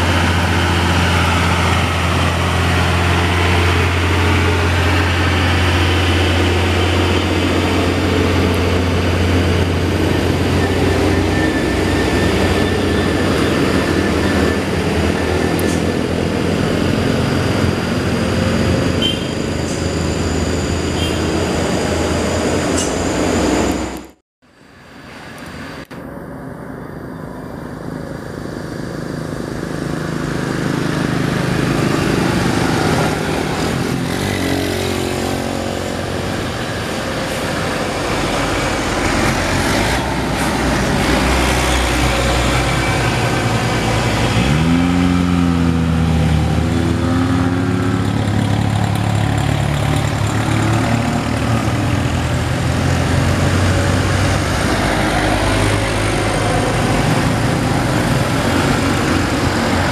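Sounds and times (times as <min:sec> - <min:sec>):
diesel truck engine labouring: 0:00.0 - 0:24.1, 0:25.4 - 0:59.9
passing motorcycles and cars: 0:25.2 - 0:59.9
engine revving: 0:28.9 - 0:59.9.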